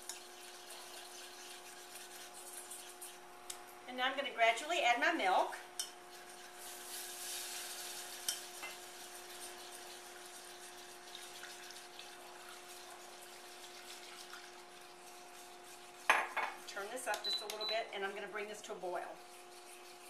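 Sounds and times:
whisk stirring in saucepan: 0.0 - 3.3, 5.8 - 17.2, 18.0 - 20.0
milk pouring: 9.2 - 16.0.

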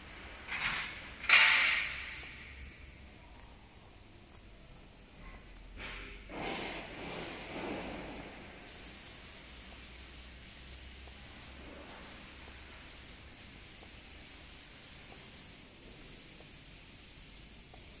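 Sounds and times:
steady high hiss: 0.0 - 18.0
rushing hiss: 1.3 - 2.7, 5.8 - 18.0.

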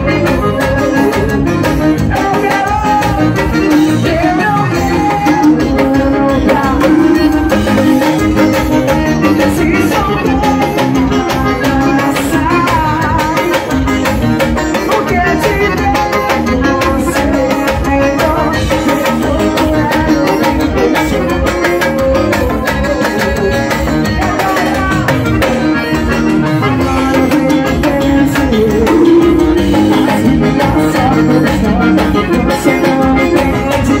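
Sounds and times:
bass guitar: 0.0 - 34.0
drums: 0.0 - 34.0
electric guitar: 0.0 - 34.0
keyboard: 0.0 - 34.0.

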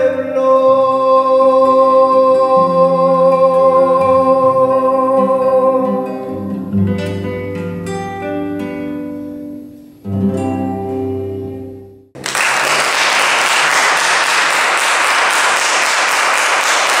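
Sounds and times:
audience applause: 12.2 - 17.0.

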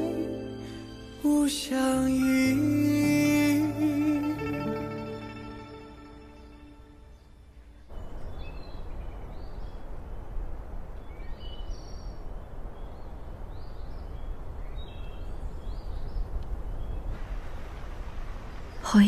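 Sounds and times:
small birds chirping: 7.0 - 19.0.

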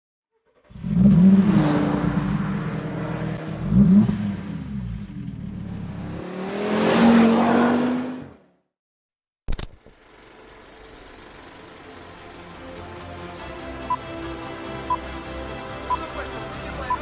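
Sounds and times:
car engine revving: 0.4 - 8.5.

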